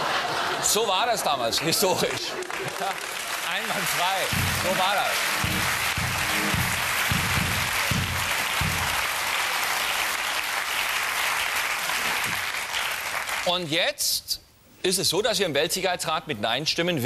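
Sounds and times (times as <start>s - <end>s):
audience applauding: 1.4s - 13.5s
band playing low notes: 3.6s - 9.3s.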